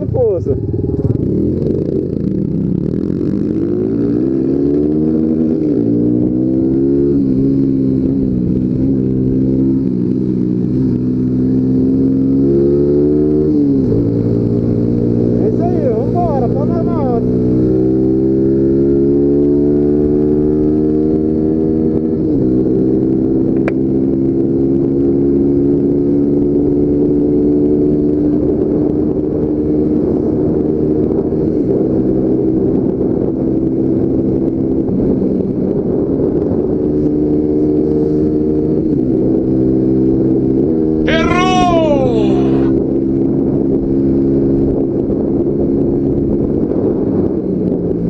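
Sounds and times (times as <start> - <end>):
motorcycle engine accelerating: 0.0 - 30.9.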